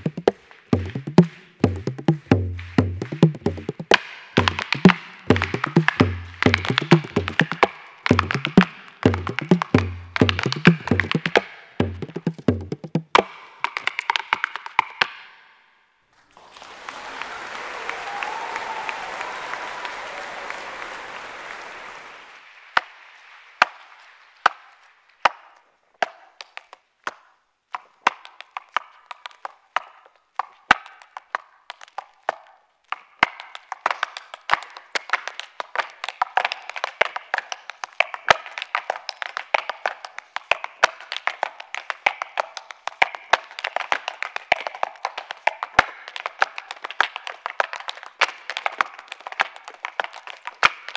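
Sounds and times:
hard-shoe step dancing clicks: 0.0 - 15.1, 27.8 - 50.9
audience applause: 16.2 - 24.1.

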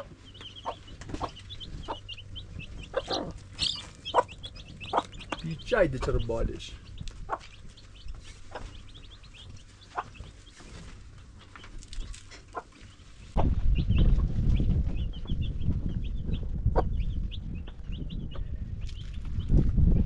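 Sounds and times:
chickens clucking: 0.0 - 19.6
quick high chirps: 3.1 - 5.4.

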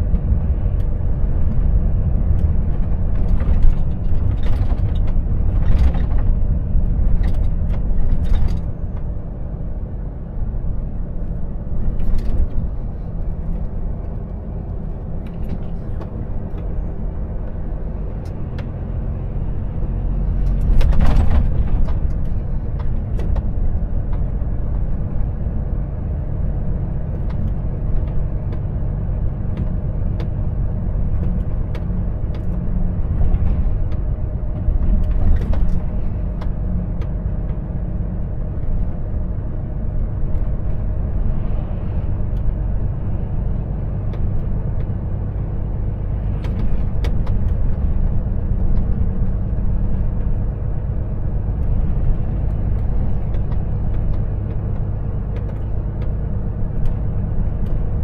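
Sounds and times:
truck engine and road rumble: 0.0 - 58.0.

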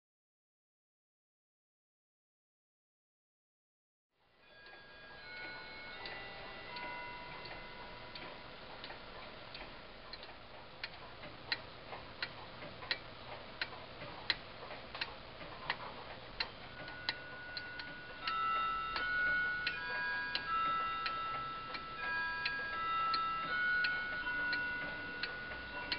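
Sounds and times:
soft held tones: 4.4 - 8.6, 16.4 - 25.9
clock ticking: 4.6 - 25.9.

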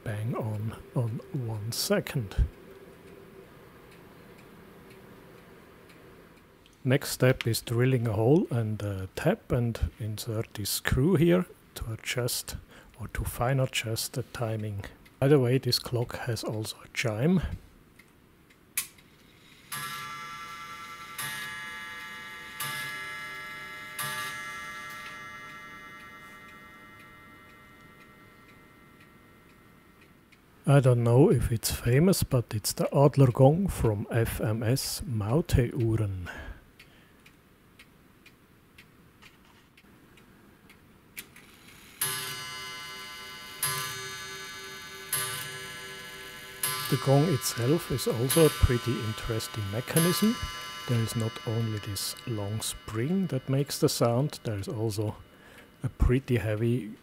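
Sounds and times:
clock escapement ticking: 3.9 - 6.5, 18.0 - 31.1, 39.8 - 57.0
clock gong chime: 19.6 - 30.0, 42.0 - 56.2.

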